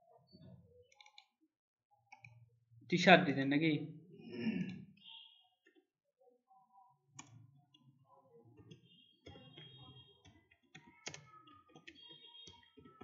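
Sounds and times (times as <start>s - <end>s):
typing on keyboard: 0.9s - 1.3s, 8.6s - 13.0s.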